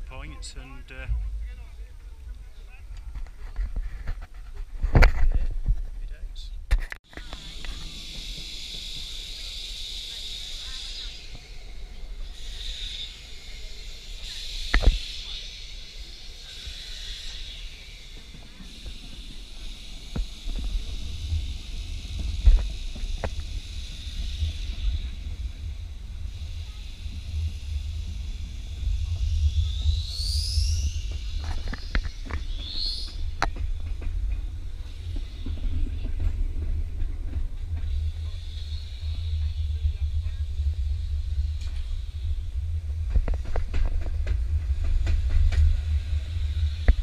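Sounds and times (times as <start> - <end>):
tram hiss and rumble: 0.0 - 47.0
rising whistle: 7.4 - 33.6.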